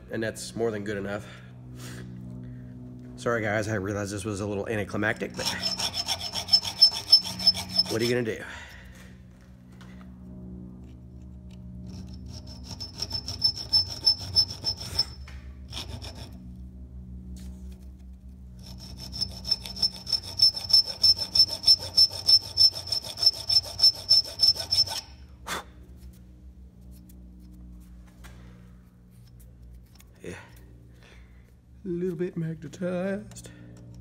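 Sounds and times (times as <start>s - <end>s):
hand file rasping on steel: 5.1s - 8.4s, 11.9s - 16.4s, 18.6s - 25.2s.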